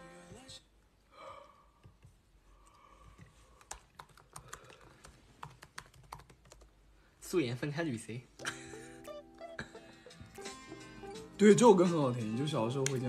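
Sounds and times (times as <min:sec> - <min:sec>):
fingers tapping on phone: 0:03.6 - 0:06.7.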